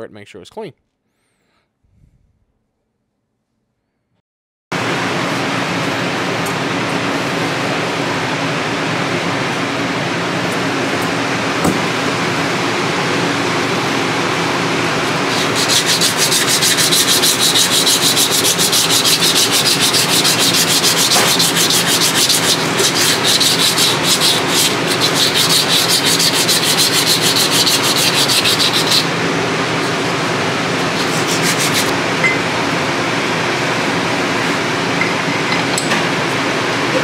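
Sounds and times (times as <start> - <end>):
steady background hum: 4.8 - 37.0
hand sanding strokes: 15.2 - 29.1, 30.8 - 31.9.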